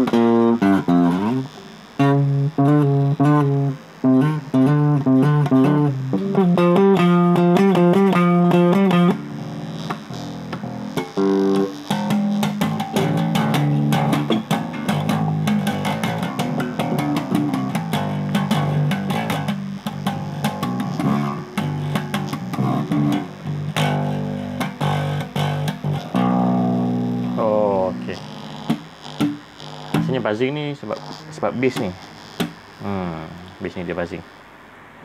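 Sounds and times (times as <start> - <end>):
electric bass guitar plucked notes: 0.0 - 34.1.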